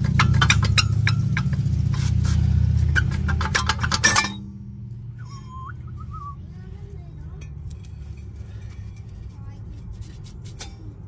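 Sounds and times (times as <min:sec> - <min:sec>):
metal rotor clank: 0:00.0 - 0:02.0, 0:02.8 - 0:04.6
metal rotor clinking and scraping: 0:00.0 - 0:04.6, 0:07.2 - 0:11.0.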